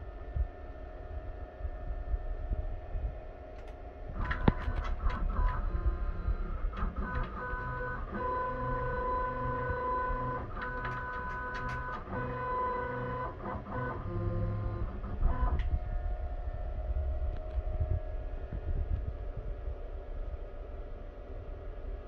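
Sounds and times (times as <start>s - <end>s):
machine clicks: 3.6s - 8.7s, 9.4s - 14.0s
machine motors whining: 3.6s - 17.7s.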